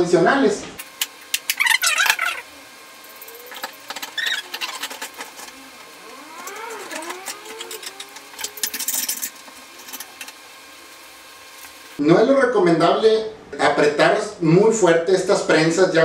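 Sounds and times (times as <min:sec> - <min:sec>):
short squeaks: 0:03.5 - 0:05.4.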